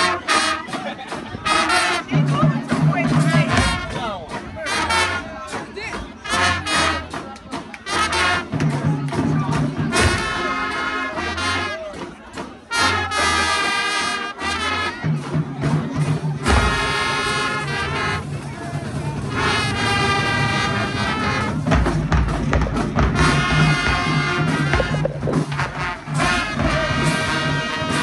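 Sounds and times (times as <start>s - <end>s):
brass horns playing chords: 0.0s - 0.8s, 6.2s - 7.2s, 12.7s - 14.9s, 19.3s - 21.7s, 23.1s - 28.0s
drums: 0.0s - 28.0s
low bass line: 24.5s - 25.8s.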